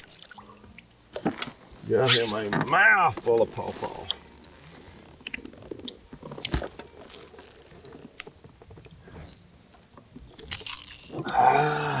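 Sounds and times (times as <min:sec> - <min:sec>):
light water noise: 0:00.0 - 0:01.1.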